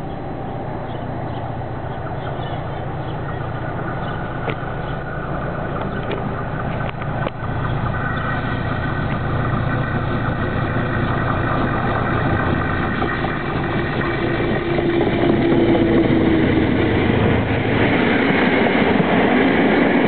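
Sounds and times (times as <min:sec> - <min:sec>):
diesel locomotive engine drone: 0:00.0 - 0:20.0.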